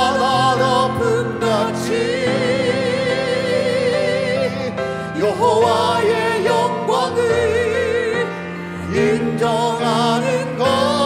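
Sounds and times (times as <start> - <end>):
man and woman singing duet: 0.0 - 11.0.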